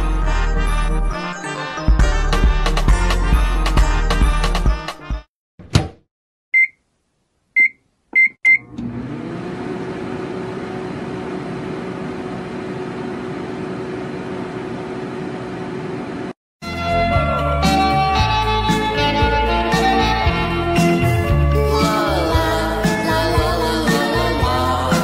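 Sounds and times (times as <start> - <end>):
short keypad beeps: 6.6 - 6.8, 7.6 - 8.6
microwave oven humming: 8.5 - 16.4.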